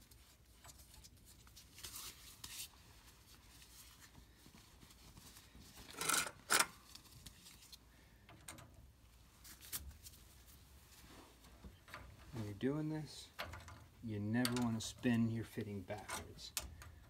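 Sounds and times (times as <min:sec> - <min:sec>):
gloved hands rustling: 0:00.0 - 0:06.0.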